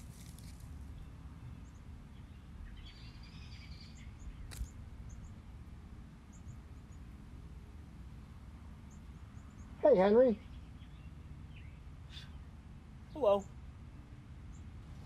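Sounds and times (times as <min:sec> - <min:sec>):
leaves rustling: 0:00.0 - 0:01.0
faint bird chirps: 0:00.9 - 0:05.4, 0:08.8 - 0:12.5
sharp snap of fruit picked: 0:04.4 - 0:04.8.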